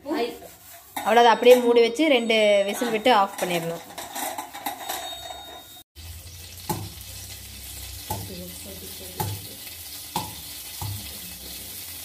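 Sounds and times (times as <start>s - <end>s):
water sizzling in hot pan: 5.9s - 12.0s.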